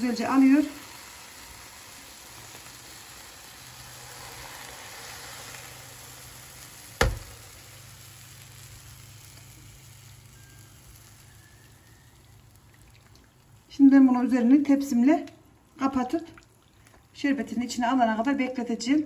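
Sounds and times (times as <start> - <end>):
syrup sizzling on hot cookies: 0.0 - 15.0.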